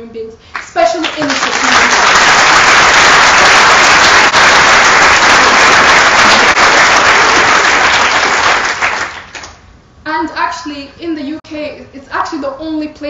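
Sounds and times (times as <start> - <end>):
audience applauding: 0.6 - 9.6.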